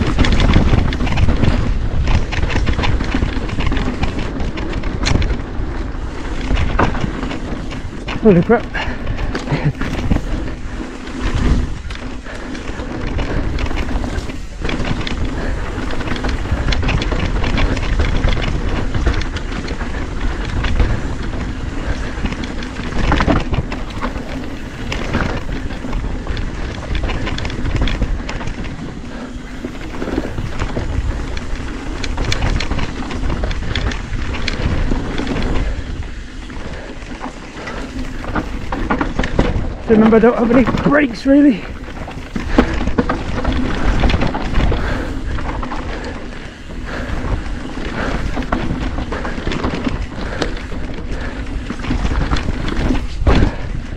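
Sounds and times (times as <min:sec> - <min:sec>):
bike rattling and knocking: 0:00.0 - 0:53.9
tyres running over dirt: 0:00.0 - 0:53.9
wind buffeting microphone: 0:00.0 - 0:53.9.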